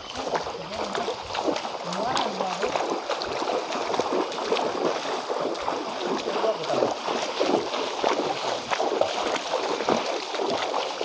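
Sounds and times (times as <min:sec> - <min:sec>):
feet splashing in shallow water: 0:00.0 - 0:11.0
running water: 0:00.0 - 0:11.0.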